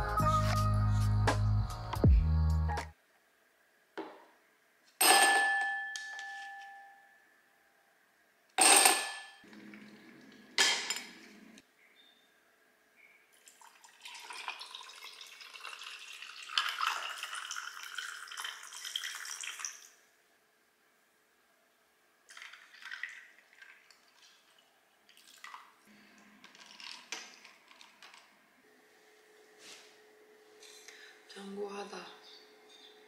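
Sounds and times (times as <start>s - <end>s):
coffee pouring over ice: 13.4s - 20.0s, 22.3s - 28.3s.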